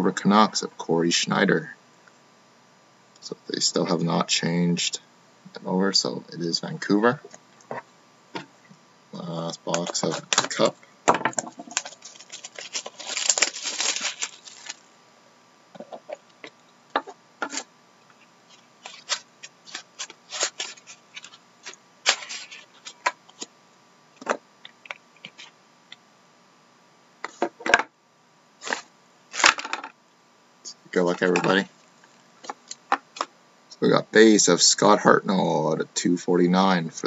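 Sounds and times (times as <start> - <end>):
plastic shrink-wrap crinkling: 9.7 - 10.7, 11.3 - 14.9, 18.5 - 23.5.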